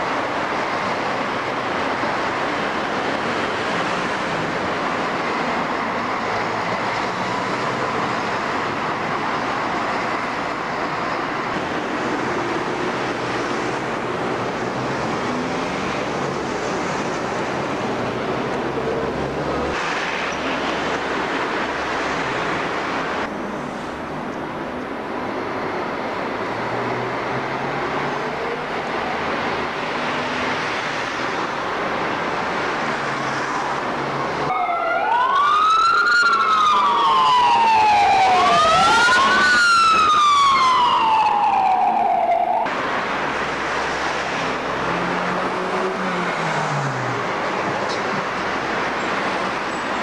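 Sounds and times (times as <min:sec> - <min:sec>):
street traffic: 0:00.0 - 0:50.0
fire siren wailing: 0:34.5 - 0:42.7.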